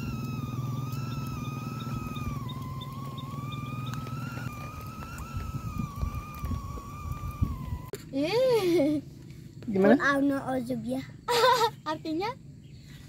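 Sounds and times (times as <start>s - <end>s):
held wavering high note: 0.0s - 8.0s
low drone: 0.0s - 9.5s.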